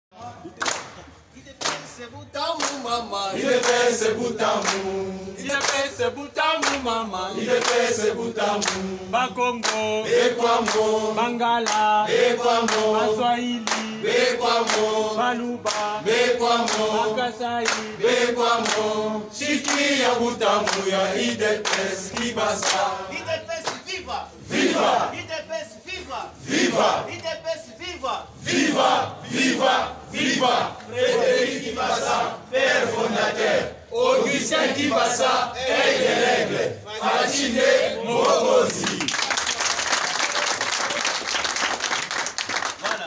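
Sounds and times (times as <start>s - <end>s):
rhythmic hand clapping: 0.4s - 25.1s, 38.2s - 43.0s
crowd singing in unison: 2.4s - 25.4s, 26.3s - 27.1s, 28.3s - 39.1s.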